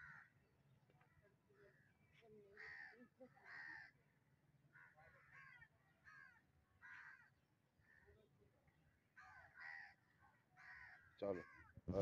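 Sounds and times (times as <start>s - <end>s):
distant crows cawing: 0.0s - 0.4s, 2.5s - 8.3s, 8.9s - 12.0s.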